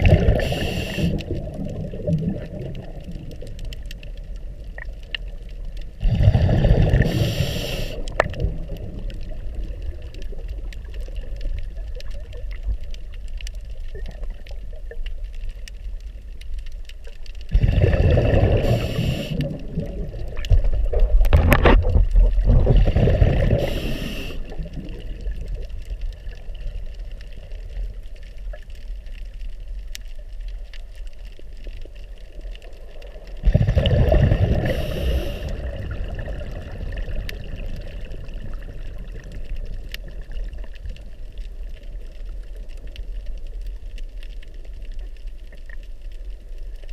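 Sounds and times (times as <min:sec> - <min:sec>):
underwater breath bubbling: 0:00.0 - 0:03.0, 0:06.0 - 0:09.7, 0:17.5 - 0:21.6, 0:22.3 - 0:25.4, 0:33.4 - 0:39.3
low underwater rumble: 0:00.0 - 0:46.9.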